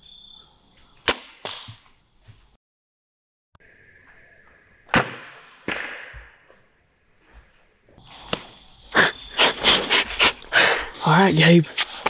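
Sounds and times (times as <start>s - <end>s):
crossbow shot crack: 1.0s - 1.8s, 4.9s - 6.5s
sharp smack: 1.0s - 1.8s, 4.9s - 6.4s.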